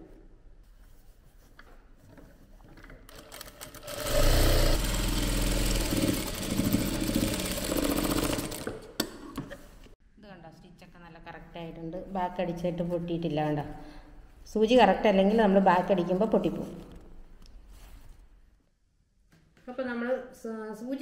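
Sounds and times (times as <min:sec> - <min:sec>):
sewing machine stitching: 0:03.1 - 0:08.9.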